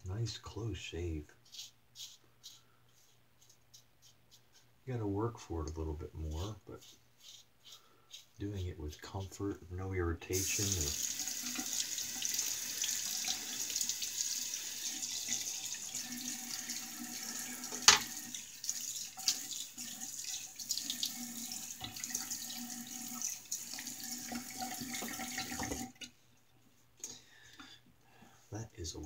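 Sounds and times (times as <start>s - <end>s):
tap water running into sink: 10.4s - 26.1s.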